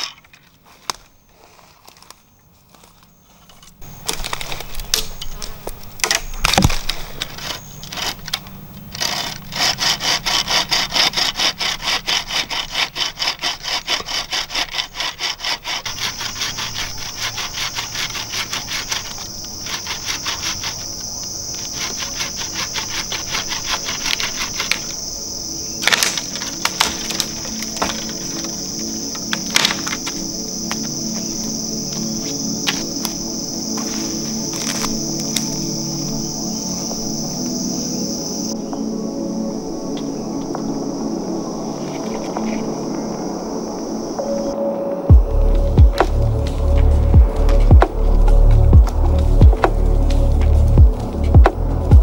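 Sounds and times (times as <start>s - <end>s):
high insect drone: 0.0s - 52.0s
hand saw cutting wood: 3.8s - 25.0s, 25.8s - 32.0s.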